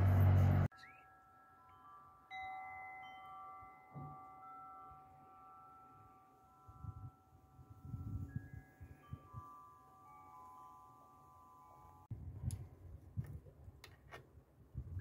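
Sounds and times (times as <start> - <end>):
soft chime-like bell notes: 0.6 - 12.1.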